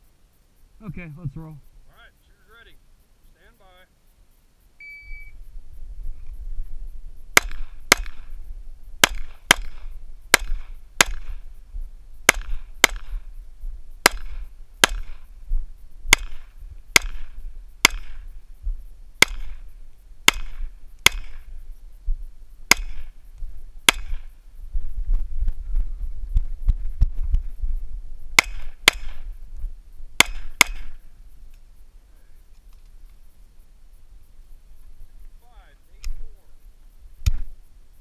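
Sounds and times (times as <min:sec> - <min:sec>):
shot timer beep: 0:04.8 - 0:05.4
pistol shots: 0:07.4 - 0:08.3, 0:09.0 - 0:11.4, 0:12.3 - 0:13.2, 0:14.0 - 0:15.2, 0:16.1 - 0:18.2, 0:19.2 - 0:19.6, 0:20.3 - 0:21.4, 0:22.7 - 0:23.1, 0:23.9 - 0:24.3, 0:28.4 - 0:29.2, 0:30.2 - 0:31.0.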